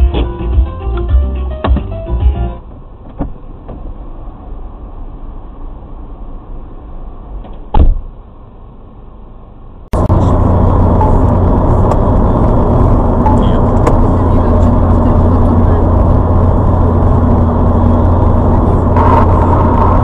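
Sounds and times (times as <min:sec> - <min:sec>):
vehicle engine and road noise: 0:00.0 - 0:20.0
sharp knock: 0:07.7 - 0:08.0.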